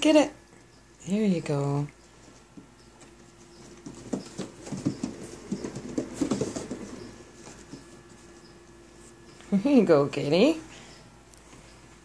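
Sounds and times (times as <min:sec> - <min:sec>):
paws tapping on wooden wheel: 0:02.4 - 0:08.6.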